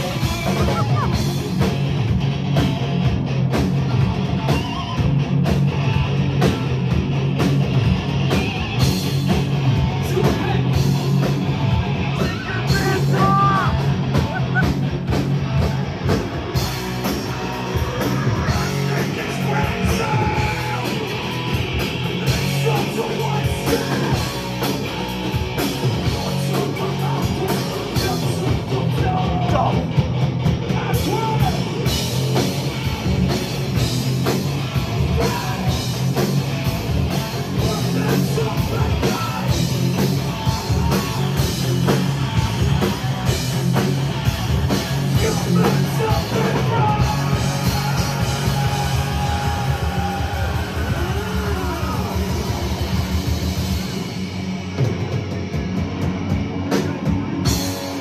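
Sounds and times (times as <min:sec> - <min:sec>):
person singing and yelling: 0:00.0 - 0:01.4, 0:10.0 - 0:11.0, 0:12.0 - 0:14.8, 0:17.1 - 0:24.7, 0:26.2 - 0:29.9, 0:30.7 - 0:31.9, 0:37.5 - 0:41.4, 0:45.1 - 0:52.9
bass guitar: 0:00.0 - 0:58.0
distorted electric guitars: 0:00.0 - 0:58.0
drum kit: 0:00.0 - 0:58.0.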